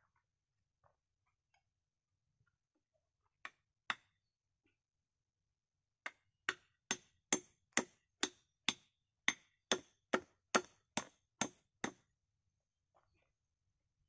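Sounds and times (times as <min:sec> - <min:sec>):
hatchet chopping log: 0:06.1 - 0:12.0.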